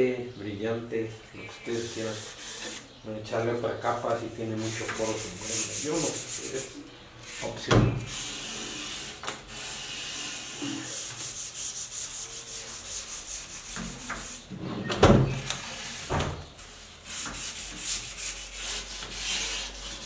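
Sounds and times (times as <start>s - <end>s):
sandpaper sanding wood: 1.7s - 2.9s, 4.6s - 14.5s, 17.0s - 20.0s.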